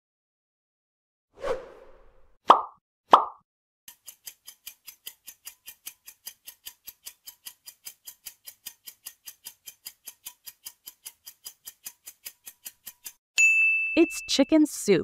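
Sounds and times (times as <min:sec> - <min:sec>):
clock-like timer ticking: 0:03.9 - 0:13.2.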